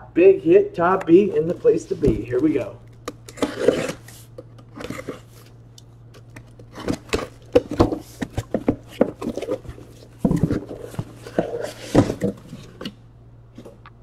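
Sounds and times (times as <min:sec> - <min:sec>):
steady low hum: 0:00.0 - 0:14.0
cardboard knocks and scrapes: 0:06.6 - 0:12.9.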